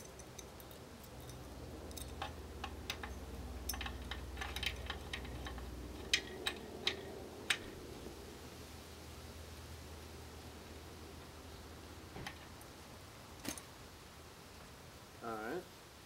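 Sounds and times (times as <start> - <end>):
metallic ticks of hand tool: 0.0 - 7.7.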